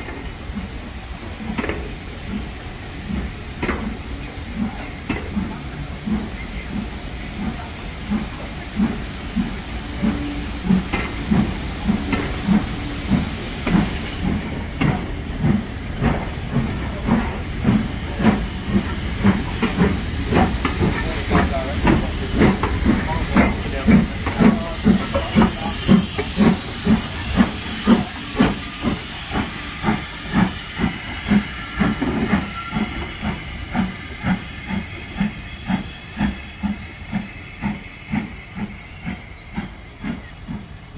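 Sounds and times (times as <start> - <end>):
hiss of steam: 0.0 - 40.9
steam locomotive exhaust chuffs: 0.0 - 40.9.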